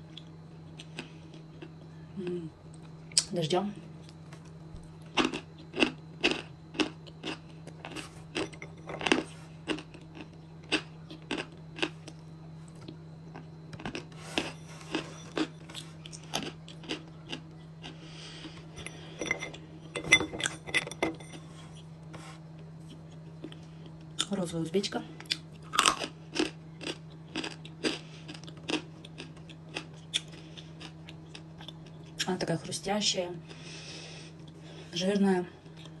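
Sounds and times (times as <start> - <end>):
crunchy chewing: 0.0 - 2.0, 4.0 - 19.1, 21.3 - 24.4, 25.2 - 32.2.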